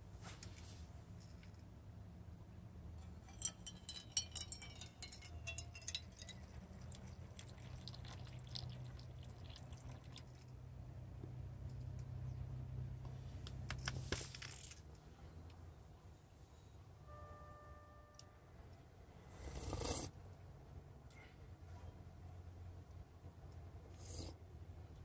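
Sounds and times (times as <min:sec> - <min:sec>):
coffee pouring into cup: 0:03.3 - 0:10.4.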